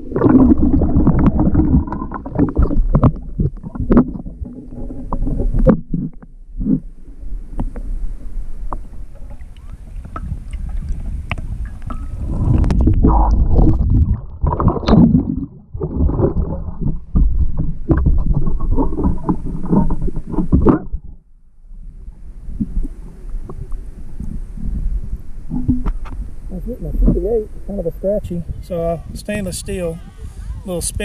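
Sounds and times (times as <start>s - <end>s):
water sloshing and splashing: 0.0s - 6.9s, 7.6s - 21.2s.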